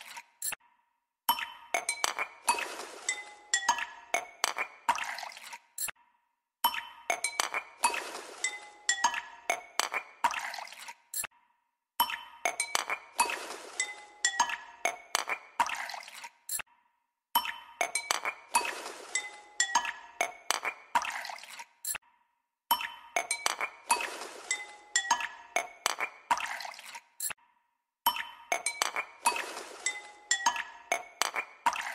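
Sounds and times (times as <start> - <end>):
glassy clinks and chime tones music: 6.7 - 9.6, 12.0 - 14.8, 17.4 - 20.2, 22.7 - 25.8, 28.1 - 31.2.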